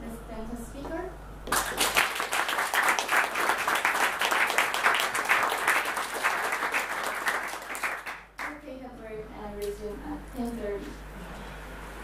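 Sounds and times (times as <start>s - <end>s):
audience applauding: 1.5s - 8.5s.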